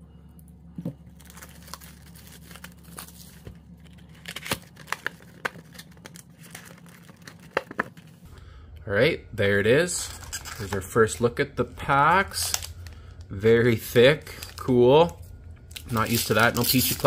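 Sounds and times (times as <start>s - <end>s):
foil packs rustling: 1.1s - 8.2s, 10.0s - 17.0s
plastic wrap crinkling: 1.1s - 8.2s, 11.9s - 17.0s.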